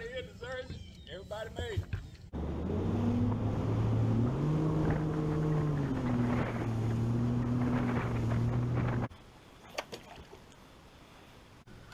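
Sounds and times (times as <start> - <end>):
outboard motor running: 2.4 - 9.1.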